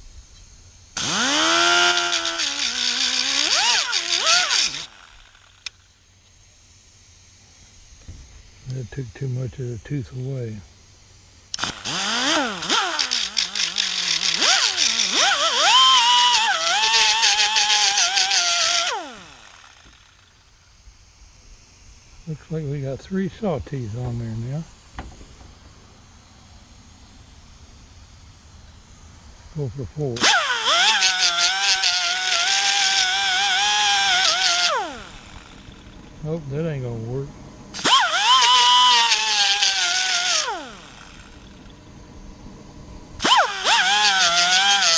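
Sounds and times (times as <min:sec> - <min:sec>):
angle grinder grinding metal: 0:01.0 - 0:05.9, 0:11.5 - 0:20.6, 0:30.0 - 0:37.0, 0:37.8 - 0:41.7, 0:43.2 - 0:44.9.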